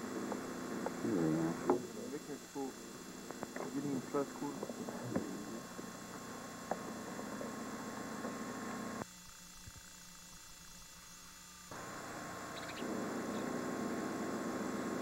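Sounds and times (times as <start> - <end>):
videotape hum and hiss: 0.0 - 15.0.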